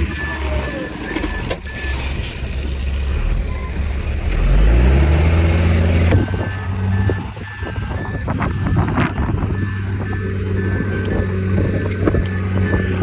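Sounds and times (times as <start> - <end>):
reversing alarm beeping: 0.0 - 2.3, 4.9 - 13.0
diesel engine running: 0.0 - 13.0.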